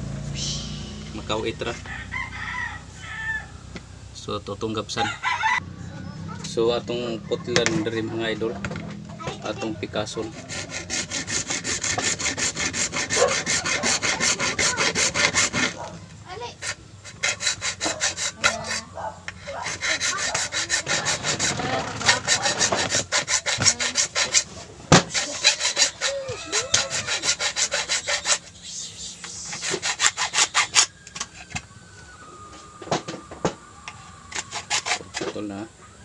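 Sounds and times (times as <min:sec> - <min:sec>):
hacksaw cutting plastic pipe: 0:10.0 - 0:15.9, 0:16.6 - 0:28.5, 0:29.2 - 0:31.3, 0:34.3 - 0:35.4.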